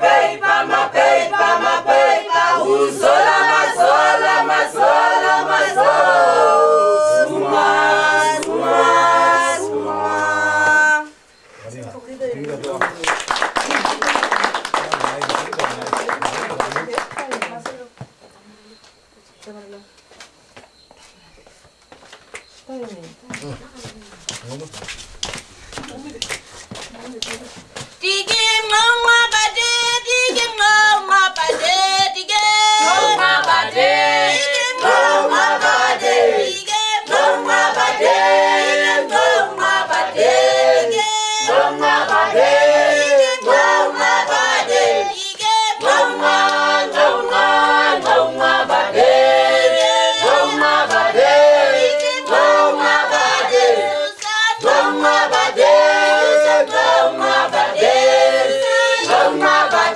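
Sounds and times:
choir singing a cappella: 0.0 - 11.2, 28.0 - 59.9.

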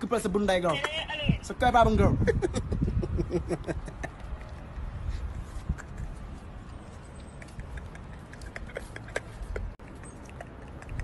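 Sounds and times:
wind rumble on microphone: 1.1 - 6.9.

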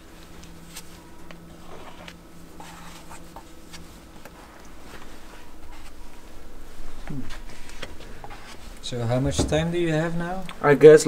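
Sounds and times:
steady low hum: 0.0 - 11.0.

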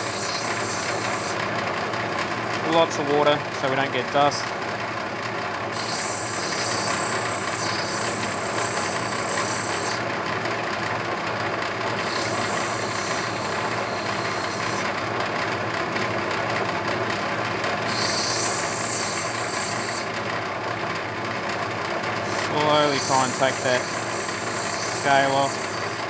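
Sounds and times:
high grinding hiss of stone: 0.0 - 1.4, 5.8 - 10.0, 12.0 - 14.8, 17.9 - 20.1, 22.2 - 26.0
grinding wheel motor running: 0.0 - 26.0.

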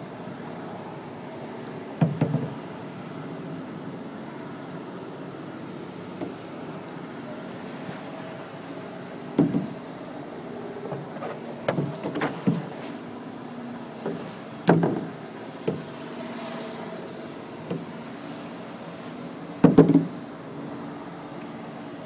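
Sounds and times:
paddle knocking against hull: 2.0 - 2.6, 9.4 - 9.8, 14.0 - 15.9, 19.6 - 20.2.

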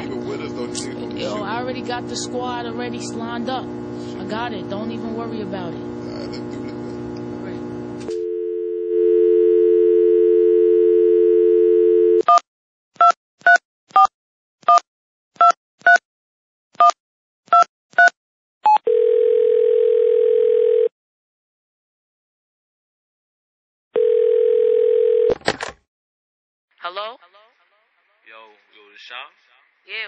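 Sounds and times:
telephone dial tone: 8.1 - 12.4, 18.7 - 20.9, 24.0 - 25.4
telephone ringback tone: 8.2 - 12.3, 18.7 - 20.9, 24.0 - 25.3.

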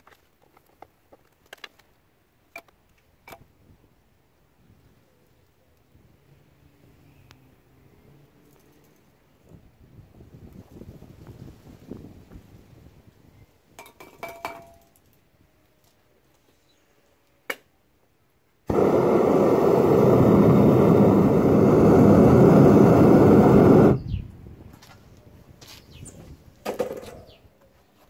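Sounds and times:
furnace burner rushing: 18.7 - 24.2.

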